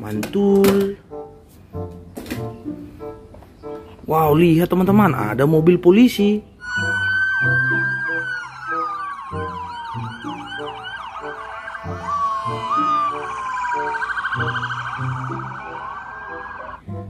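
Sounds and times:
background music: 0:00.0 - 0:17.0
police sirens: 0:06.6 - 0:16.8.

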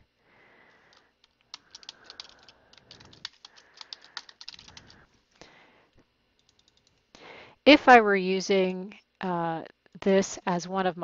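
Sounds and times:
keyboard typing: 0:00.9 - 0:05.0, 0:06.4 - 0:06.9.

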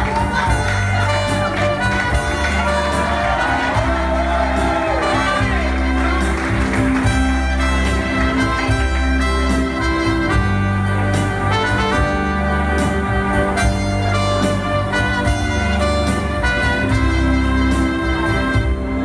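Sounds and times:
bass line: 0:00.0 - 0:19.0
keyboard: 0:00.0 - 0:19.0
saxophone: 0:00.0 - 0:19.0
trumpets: 0:00.0 - 0:19.0.

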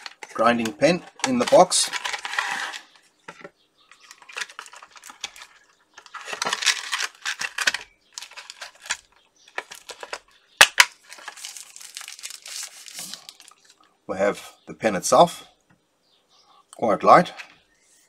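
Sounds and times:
cardboard and plastic rustling: 0:00.0 - 0:13.9.

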